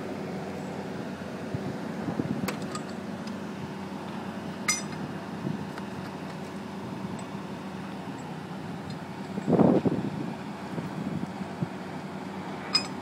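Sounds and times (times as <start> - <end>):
metal clinks of wheel brace: 2.5 - 3.0, 4.7 - 5.0, 12.7 - 13.0.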